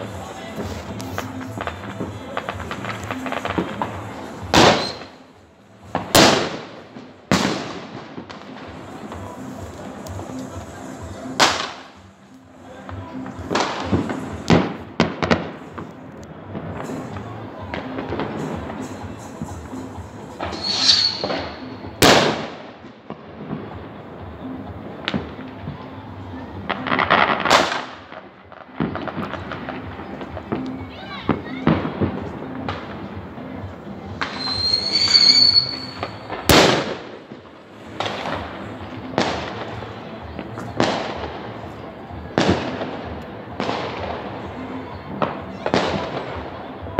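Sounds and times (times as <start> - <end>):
fireworks bangs with echo: 0.0 - 25.8, 26.6 - 46.9
music: 0.0 - 46.9
whistling firework rocket: 4.6 - 5.2, 20.4 - 22.3, 34.2 - 36.9.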